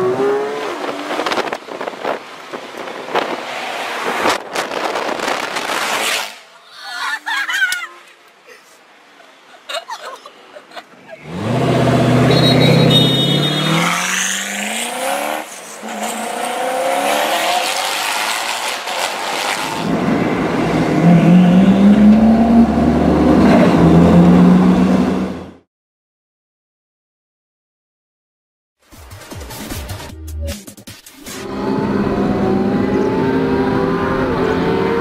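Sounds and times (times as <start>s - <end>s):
car engine accelerating hard: 11.2s - 25.6s, 31.4s - 35.0s.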